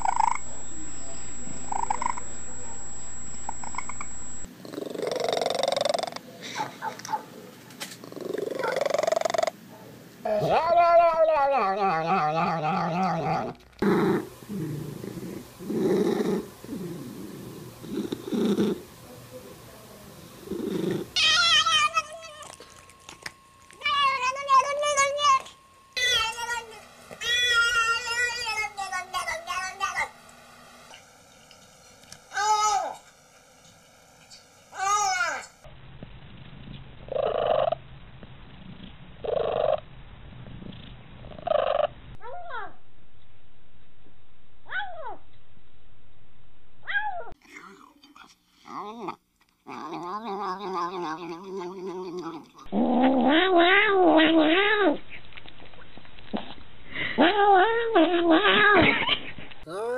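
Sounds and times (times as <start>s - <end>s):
cat purring: 0.0s - 6.2s, 8.0s - 9.6s, 13.0s - 19.0s, 20.2s - 21.2s, 38.6s - 39.8s
cat crying: 21.2s - 22.6s, 53.1s - 55.0s.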